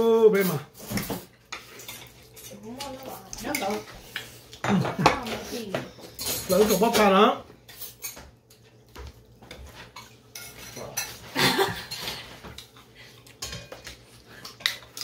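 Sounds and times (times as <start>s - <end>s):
cutlery clinking against plates: 0.4s - 15.0s.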